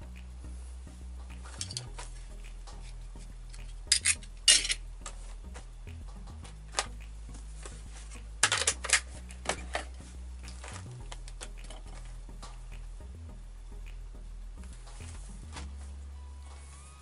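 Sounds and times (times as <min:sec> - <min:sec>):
steady low hum: 0:00.0 - 0:17.0
metal clinking and clattering: 0:03.9 - 0:04.8.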